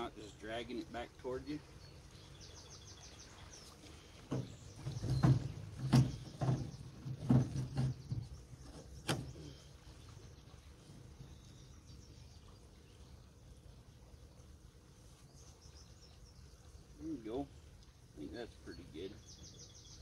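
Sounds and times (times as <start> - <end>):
hollow knocks on boat: 4.2 - 9.4.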